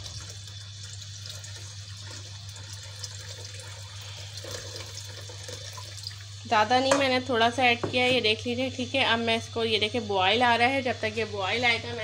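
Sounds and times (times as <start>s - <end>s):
water pouring into a pot: 0.0s - 6.7s.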